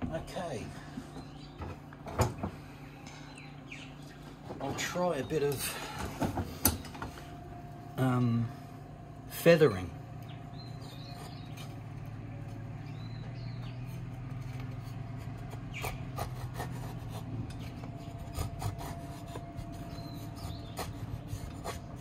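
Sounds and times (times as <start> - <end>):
blade scraping wood: 10.7 - 22.0.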